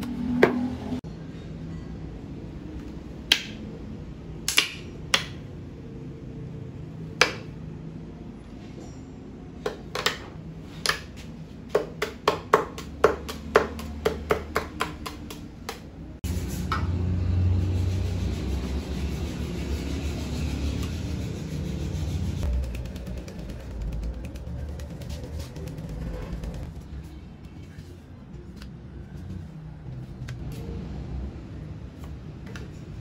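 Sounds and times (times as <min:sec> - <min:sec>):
low hum: 0:16.2 - 0:28.3.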